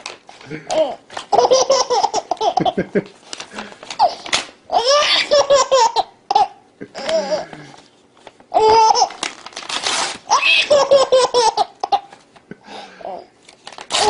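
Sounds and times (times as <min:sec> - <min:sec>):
baby laughing: 0:00.6 - 0:03.0, 0:04.0 - 0:07.5, 0:08.5 - 0:09.2, 0:10.3 - 0:12.2
paper tearing: 0:08.8 - 0:10.4, 0:13.5 - 0:14.0.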